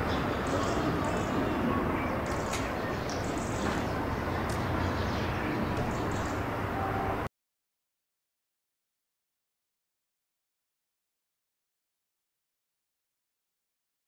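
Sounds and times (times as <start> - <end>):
outdoor background noise: 0.0 - 7.3.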